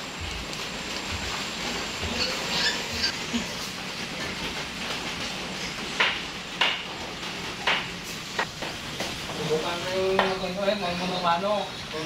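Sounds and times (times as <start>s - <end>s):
piglets squeaking: 2.1s - 3.2s.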